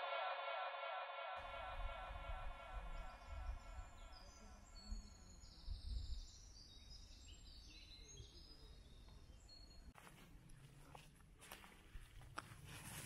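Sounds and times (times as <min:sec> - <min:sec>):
birds chirping: 0:02.8 - 0:10.0.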